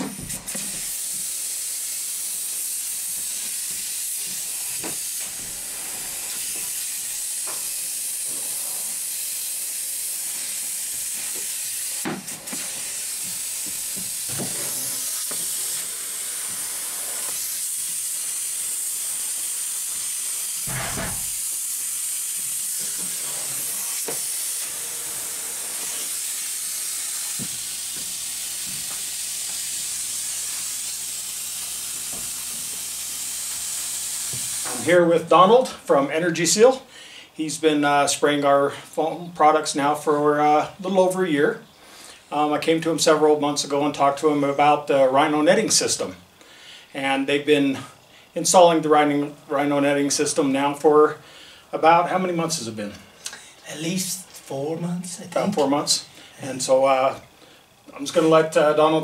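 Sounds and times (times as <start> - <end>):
spray foam gun hissing: 0.0 - 34.9.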